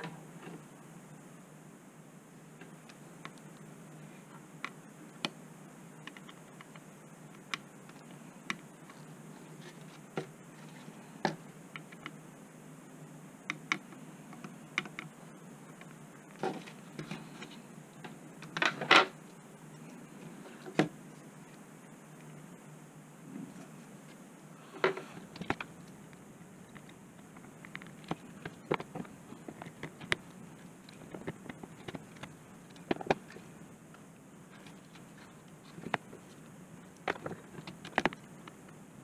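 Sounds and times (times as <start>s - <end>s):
faint steady hum: 0.0s - 39.0s
small clicks and taps: 13.5s - 15.1s.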